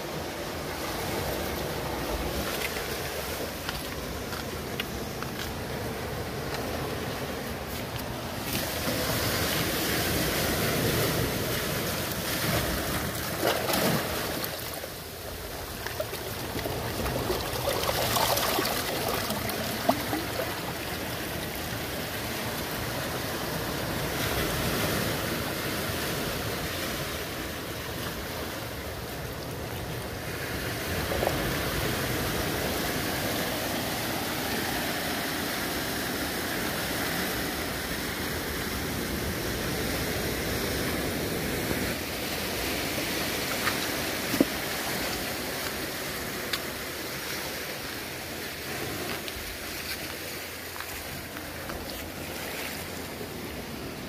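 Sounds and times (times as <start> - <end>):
sea surf washing against rocks: 0.0 - 54.0.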